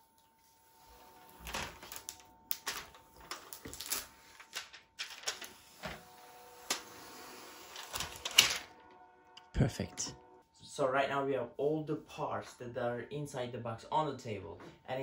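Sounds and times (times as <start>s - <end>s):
plastic film crinkling: 0.9s - 6.0s.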